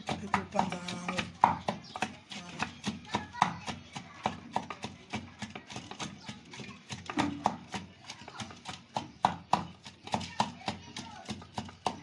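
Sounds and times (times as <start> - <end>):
wooden pestle pounding in mortar: 0.0 - 12.0.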